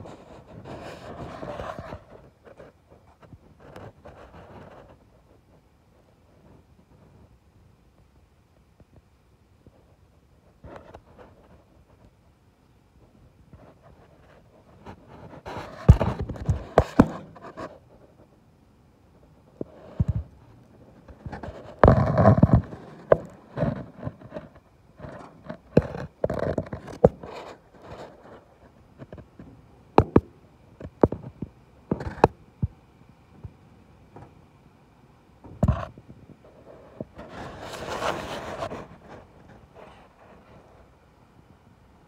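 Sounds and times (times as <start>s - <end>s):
camera probe scraping metal: 13.8s - 17.8s, 21.0s - 29.2s, 36.7s - 40.7s.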